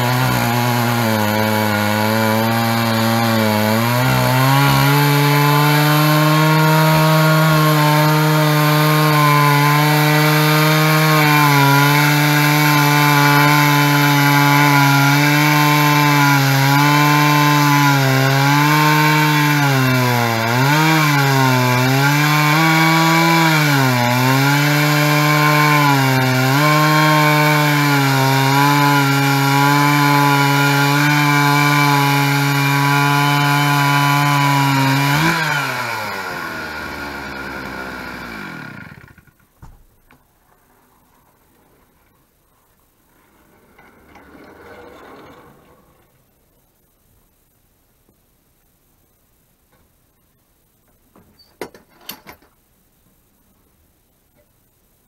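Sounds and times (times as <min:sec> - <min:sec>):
chainsaw cutting log: 0:00.0 - 0:39.4.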